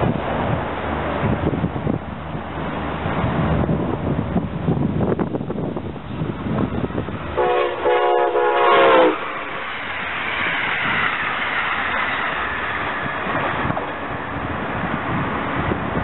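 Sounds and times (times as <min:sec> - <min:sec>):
train horn blast: 0:07.3 - 0:09.6.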